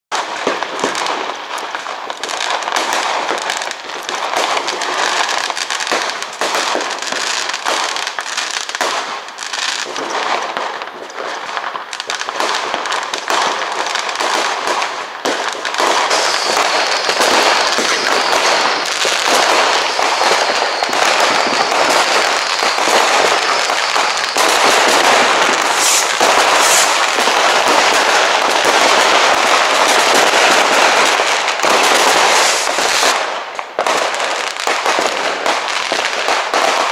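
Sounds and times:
firecrackers crackling: 0.1 - 36.9
high steady whistle: 15.8 - 28.2.

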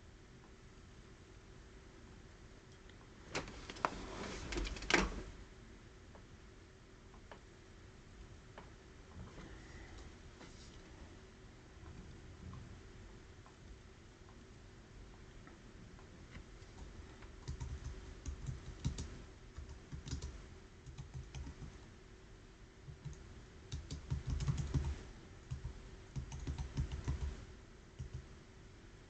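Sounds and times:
computer keyboard typing: 4.5 - 5.1, 16.7 - 21.8, 22.9 - 27.4, 28.0 - 28.3.

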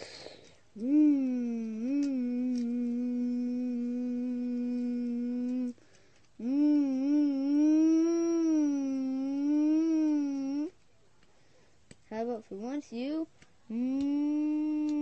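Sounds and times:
person humming: 0.0 - 5.8, 6.4 - 10.8, 13.7 - 15.0.

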